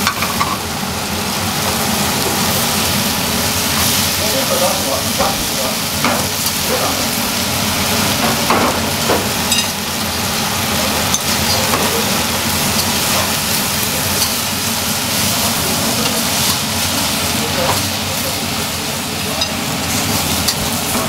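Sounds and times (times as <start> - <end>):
stir-fry sizzling in woks: 0.0 - 21.0
chopsticks turning food: 10.8 - 21.0.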